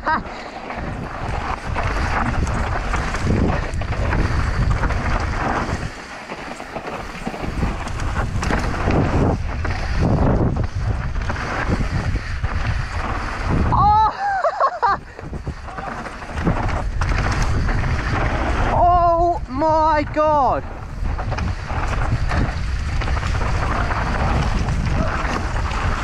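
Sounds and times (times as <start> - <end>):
bike tyres skidding on dirt: 0.0 - 26.0
wind buffeting microphone: 0.0 - 26.0.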